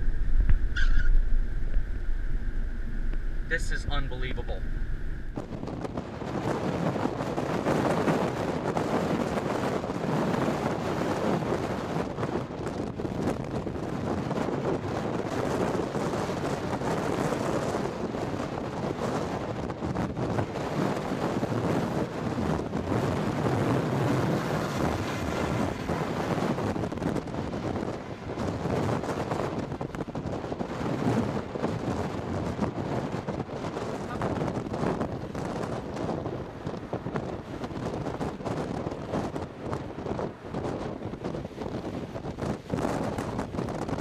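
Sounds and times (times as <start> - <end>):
gusty wind buffeting microphone: 0.0 - 44.0.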